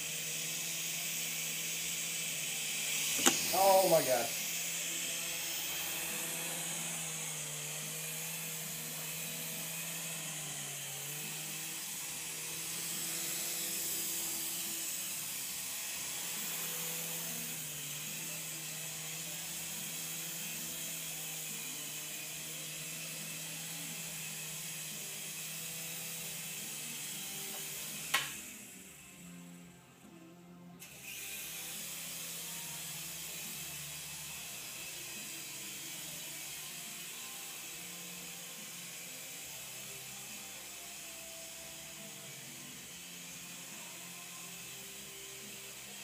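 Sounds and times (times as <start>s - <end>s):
toy helicopter motor whirring: 0.0s - 29.7s, 30.8s - 46.0s
sharp knock: 3.2s - 3.6s.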